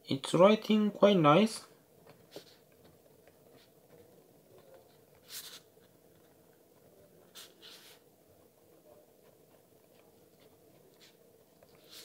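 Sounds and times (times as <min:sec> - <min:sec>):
pen scratching on paper: 0:03.5 - 0:06.4, 0:07.2 - 0:08.1.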